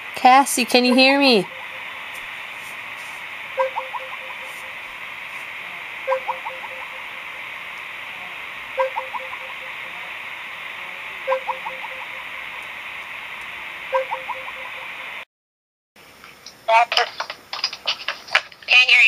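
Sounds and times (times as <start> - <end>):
steady hiss: 0.0 - 15.2
phone ringtone beeps and chirps: 3.6 - 4.8, 6.0 - 7.2, 8.8 - 9.8, 11.2 - 12.2, 14.0 - 14.8.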